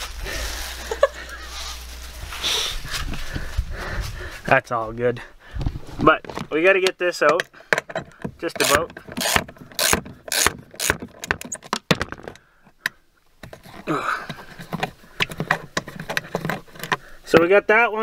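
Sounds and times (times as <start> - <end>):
hand scraping plastic trim: 8.3 - 12.4.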